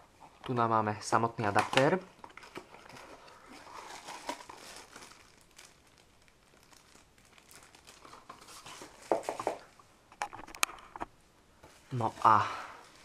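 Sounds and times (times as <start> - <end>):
plastic bag crinkling: 1.4 - 9.8.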